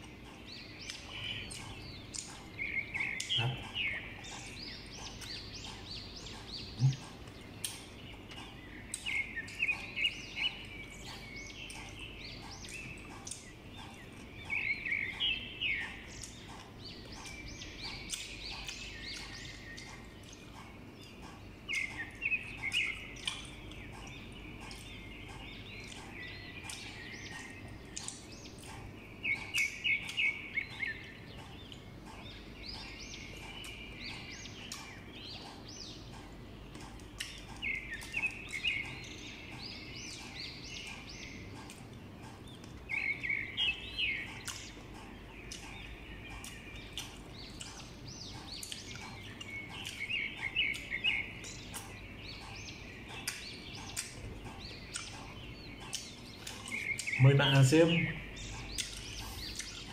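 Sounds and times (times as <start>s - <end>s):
bird chirping: 0.0s - 59.9s
crunchy chewing clicks: 0.0s - 59.9s.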